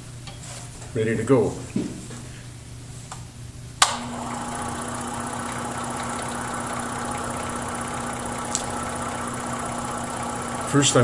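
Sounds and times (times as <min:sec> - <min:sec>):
scroll saw switch click: 0:03.8 - 0:04.0, 0:08.4 - 0:08.8
scroll saw motor humming: 0:03.8 - 0:11.0.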